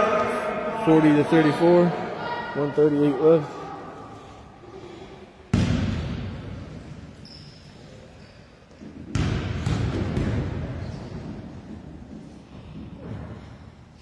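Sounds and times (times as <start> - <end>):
booming echo in hall: 0.0 - 7.2, 8.8 - 13.9
basketball bouncing on hardwood floor: 8.9 - 11.4.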